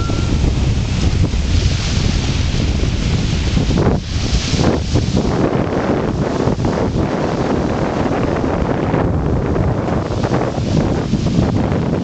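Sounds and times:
small waves breaking on sand: 0:00.0 - 0:08.7
wind buffeting microphone: 0:00.0 - 0:12.0.

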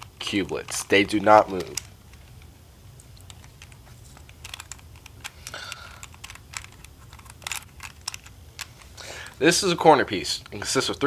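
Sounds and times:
faint low hum: 0:00.0 - 0:11.0
plastic puzzle pieces clicking: 0:00.2 - 0:02.5, 0:03.1 - 0:09.3.

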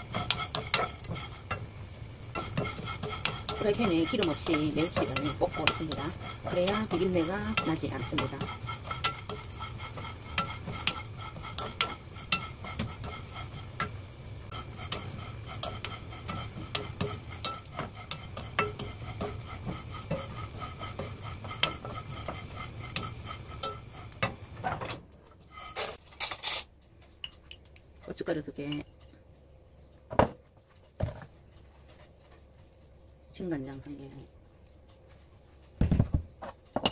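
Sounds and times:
utensil scraping a pan: 0:00.0 - 0:24.6, 0:25.4 - 0:26.6
anchovies roasting in a pan: 0:00.0 - 0:27.0, 0:30.7 - 0:36.9
spoon knocking against a pan: 0:14.8 - 0:24.4.

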